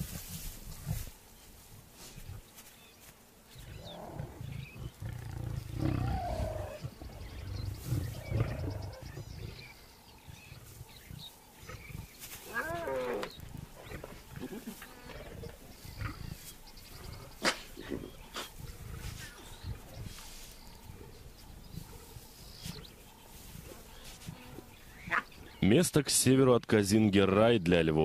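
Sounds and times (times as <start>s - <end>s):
lion rumbling grunts: 3.6s - 24.6s
lion cub wavering call: 12.5s - 13.3s.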